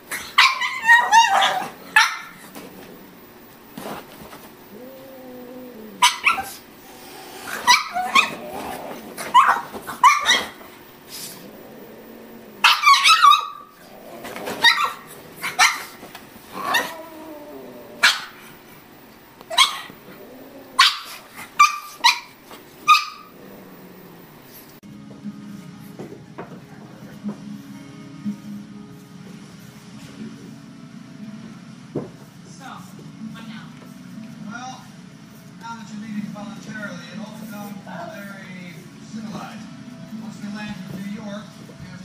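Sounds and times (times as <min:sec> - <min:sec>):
dog barking: 0:00.3 - 0:02.4, 0:06.0 - 0:06.6, 0:07.5 - 0:08.4, 0:09.3 - 0:10.6, 0:12.6 - 0:13.7, 0:14.6 - 0:16.0, 0:18.0 - 0:18.4, 0:19.5 - 0:19.9, 0:20.8 - 0:23.3.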